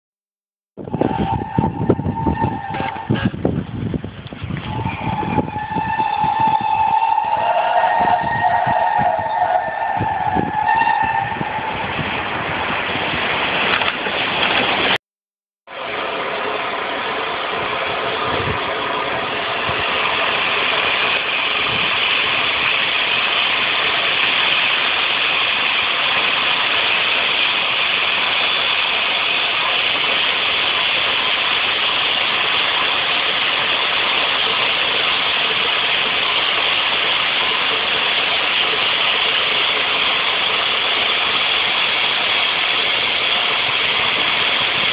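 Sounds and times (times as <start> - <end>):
steam locomotive whistle: 0.8 - 3.4, 4.6 - 12.0
steam hissing: 0.8 - 4.0, 4.6 - 15.0, 15.8 - 44.9.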